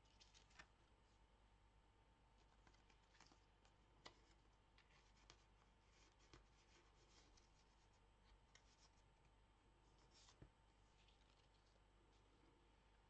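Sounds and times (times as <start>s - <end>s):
paper rustling: 0.0s - 0.7s, 2.4s - 9.1s, 9.9s - 11.8s.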